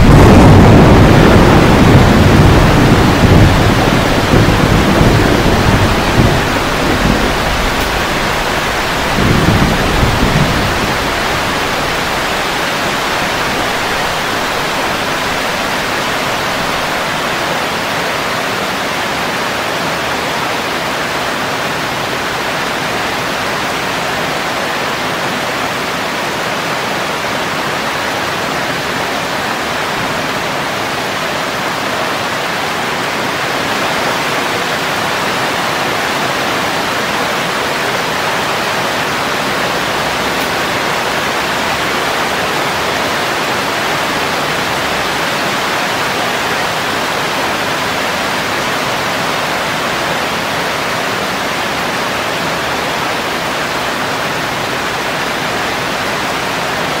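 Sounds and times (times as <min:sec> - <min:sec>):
thunder rumble: 0:00.0 - 0:18.3
heavy rain falling: 0:00.0 - 0:57.0.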